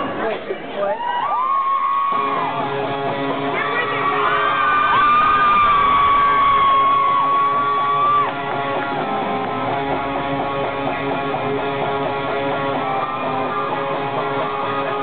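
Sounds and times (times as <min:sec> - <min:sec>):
strummed guitar chords: 0:02.2 - 0:04.2, 0:05.8 - 0:15.0.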